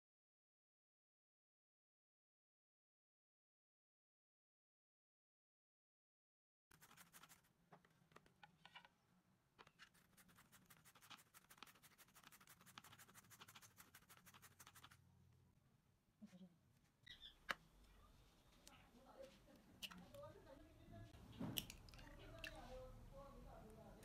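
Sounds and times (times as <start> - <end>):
carrot grated on plastic grater: 6.7 - 7.5, 9.9 - 15.0.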